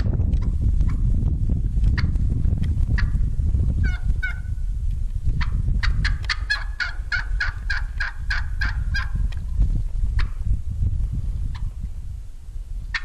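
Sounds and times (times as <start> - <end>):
low rumble: 0.0 - 6.3, 7.0 - 12.9
turkey hen yelping: 3.8 - 4.5, 5.4 - 9.1.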